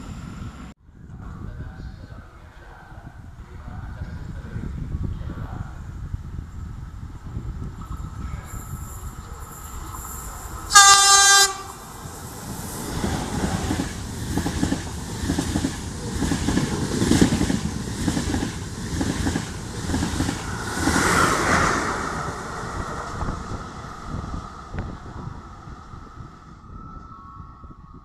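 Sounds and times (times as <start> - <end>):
train horn blast: 10.7 - 11.8.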